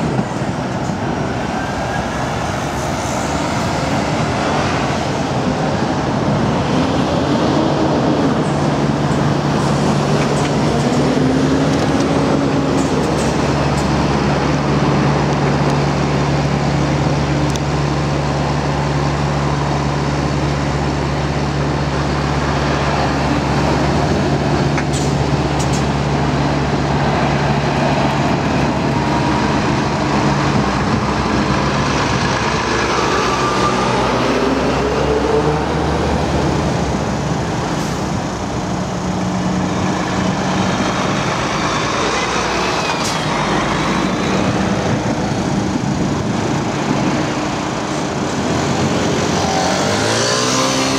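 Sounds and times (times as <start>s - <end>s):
road traffic: 0.0s - 50.9s
truck diesel engines: 0.0s - 50.9s.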